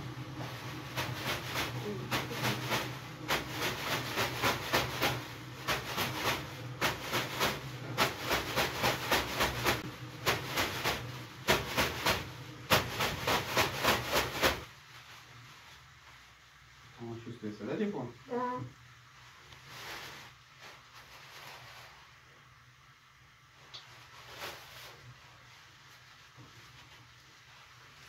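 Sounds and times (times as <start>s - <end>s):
leafy brooms swishing on body: 0.2s - 16.4s.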